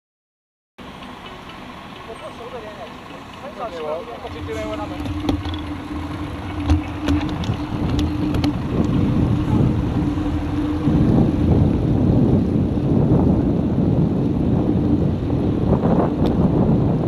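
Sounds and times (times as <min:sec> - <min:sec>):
steady hum: 0:00.8 - 0:17.0
wind rushing over microphone: 0:03.6 - 0:17.0.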